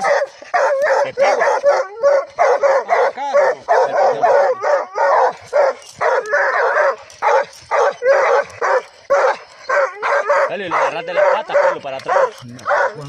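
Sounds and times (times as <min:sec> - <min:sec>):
dog whining: 0:00.0 - 0:13.0
dogs barking excitedly: 0:00.0 - 0:13.0.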